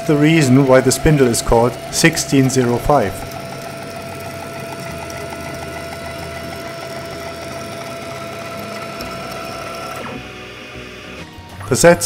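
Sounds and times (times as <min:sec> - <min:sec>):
stepper motor whine: 0:00.0 - 0:11.7
ball screw ticking: 0:01.0 - 0:09.8.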